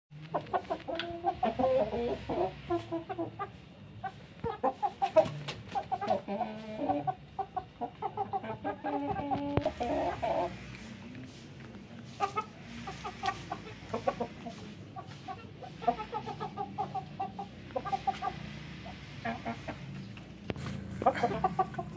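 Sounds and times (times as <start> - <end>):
chickens clucking: 0.2 - 21.9.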